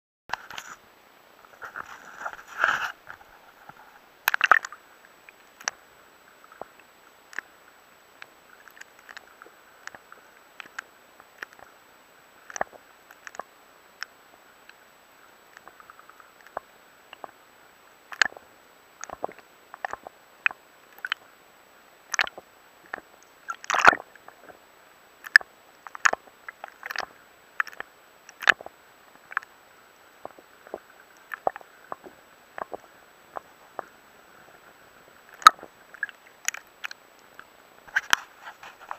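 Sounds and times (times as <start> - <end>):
faint steady hiss: 0.3 - 38.9.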